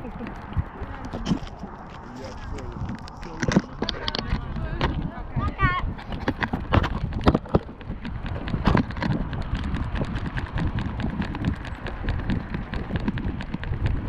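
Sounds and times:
camera handling rumble: 0.0s - 14.0s.

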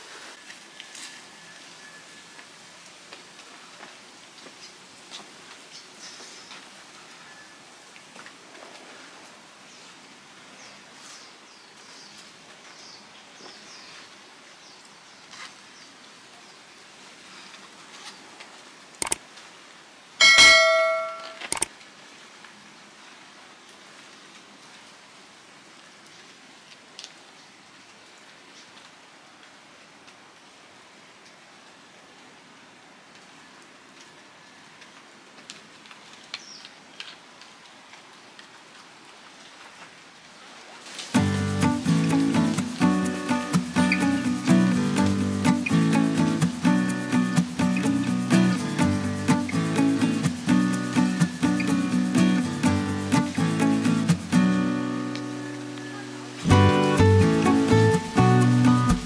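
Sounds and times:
rain on foliage: 0.0s - 20.4s, 21.3s - 59.0s
bright bell ding: 20.2s - 21.5s.

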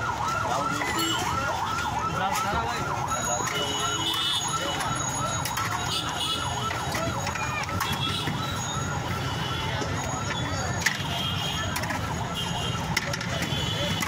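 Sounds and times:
warbling siren-like tone: 0.0s - 10.9s
street din: 0.0s - 14.0s.

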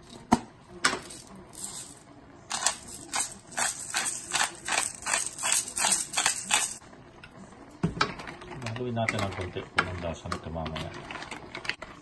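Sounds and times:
pepper mill grinding: 1.0s - 6.8s.

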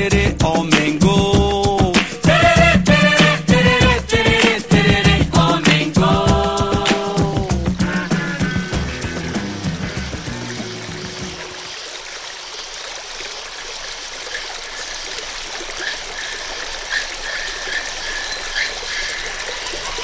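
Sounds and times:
waterfall rushing: 5.7s - 20.0s.

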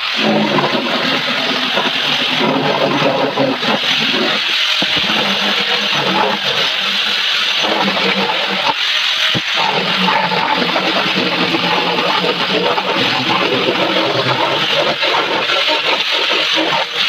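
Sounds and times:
electric sander on wood: 0.0s - 17.0s.

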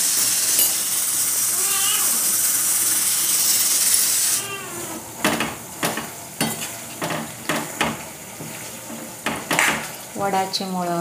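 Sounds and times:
herbs sizzling in hot oil: 0.0s - 11.0s.

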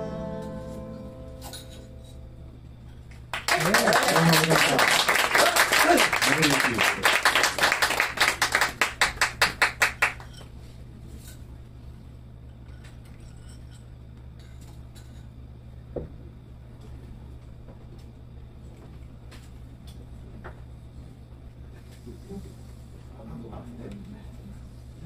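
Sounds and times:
low amplifier hum: 0.0s - 13.2s
people clapping: 3.1s - 10.4s.

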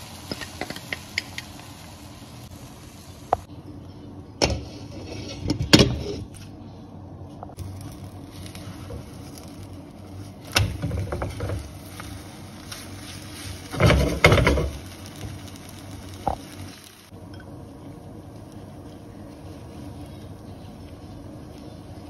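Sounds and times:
omelette sizzling in a pan: 0.0s - 3.5s, 7.5s - 22.0s
spatula knocking and scraping pan: 10.6s - 11.7s.

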